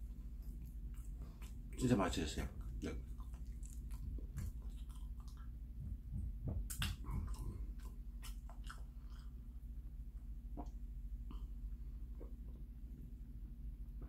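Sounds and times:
man chewing: 0:00.1 - 0:01.9, 0:02.5 - 0:05.8, 0:06.6 - 0:09.8.

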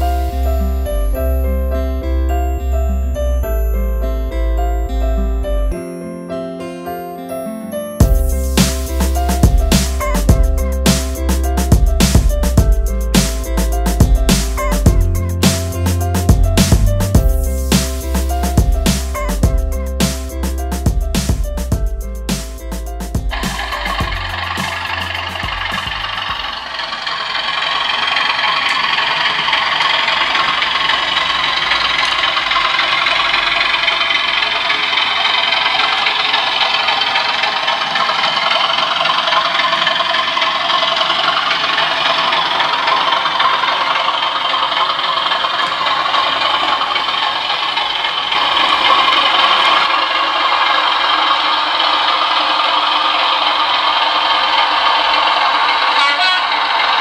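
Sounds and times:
model diesel engine sound from speaker: 0:00.0 - 0:05.8, 0:08.0 - 0:57.0
model wagons rattling over track: 0:23.3 - 0:57.0.

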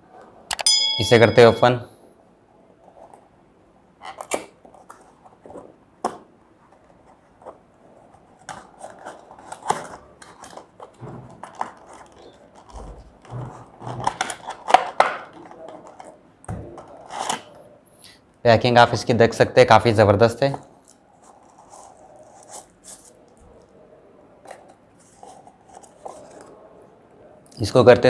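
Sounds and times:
cardboard rustling and scraping: 0:06.7 - 0:17.5, 0:24.4 - 0:26.6.

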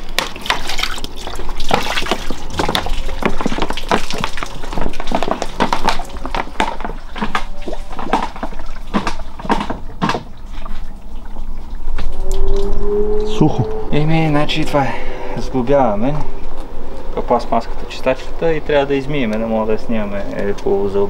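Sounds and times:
water pouring and splashing: 0:00.0 - 0:12.9
water dripping: 0:00.0 - 0:21.0.

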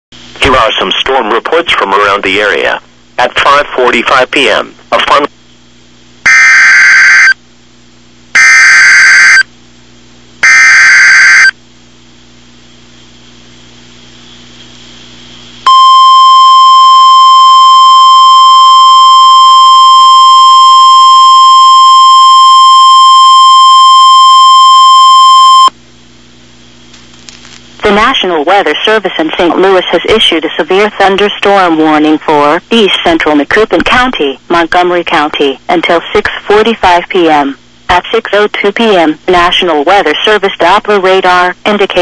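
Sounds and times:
steady warning alarm tone: 0:08.4 - 0:09.4, 0:10.4 - 0:11.5, 0:15.7 - 0:25.7.

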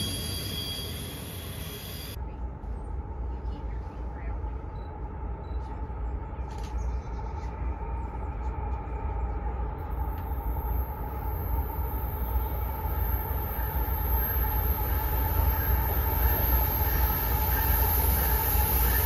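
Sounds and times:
high thin whine: 0:00.0 - 0:02.2, 0:09.9 - 0:19.0
diesel locomotive rumble: 0:00.0 - 0:19.0.

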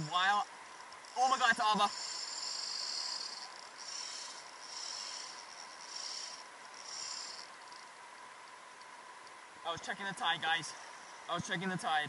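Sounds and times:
fishing reel drag buzzing: 0:00.0 - 0:08.0
steady hiss: 0:00.0 - 0:12.0.

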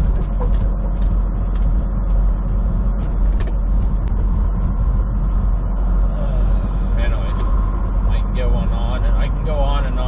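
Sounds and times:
cab creaks and rattles: 0:00.0 - 0:06.0
truck engine and road drone: 0:00.0 - 0:10.0.

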